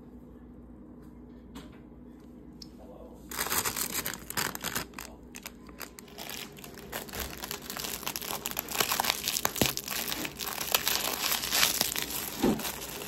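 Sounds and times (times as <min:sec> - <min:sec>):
wrapper crinkling: 0:03.3 - 0:13.0.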